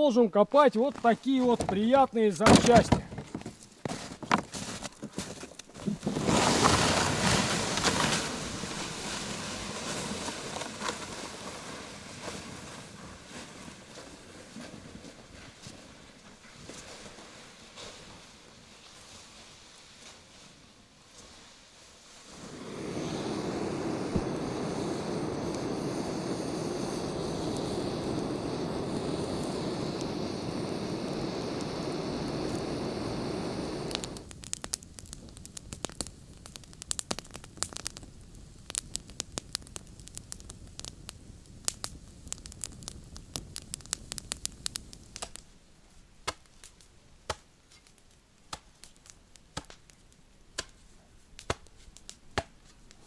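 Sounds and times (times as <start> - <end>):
twig fire crackling: 0.0 - 53.0
gas torch roaring: 22.2 - 45.4.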